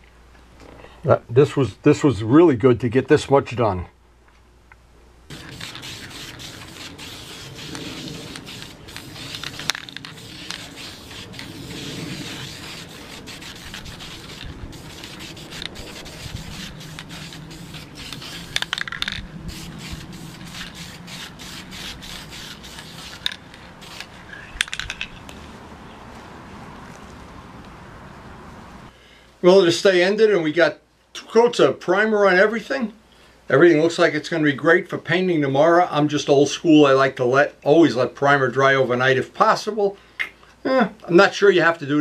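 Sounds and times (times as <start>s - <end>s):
aerosol can spraying: 5.3s - 24.2s.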